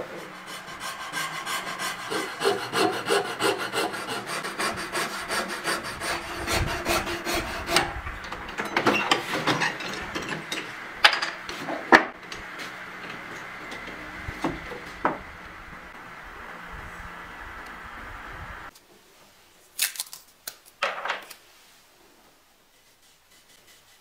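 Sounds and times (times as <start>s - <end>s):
scraping strokes: 0.0s - 7.9s, 22.7s - 24.0s
rasping sawing strokes on wood: 0.0s - 8.0s.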